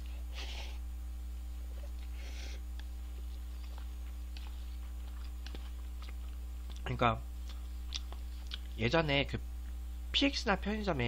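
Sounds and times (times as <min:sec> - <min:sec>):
low electrical hum: 0:00.0 - 0:11.0
chewing with mouth clicks: 0:02.7 - 0:08.8.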